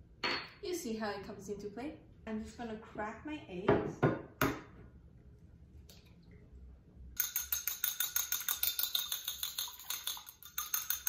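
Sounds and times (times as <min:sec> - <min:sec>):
chopsticks beating egg in bowl: 0:07.2 - 0:11.0
egg cracking on ceramic bowl: 0:07.2 - 0:11.0.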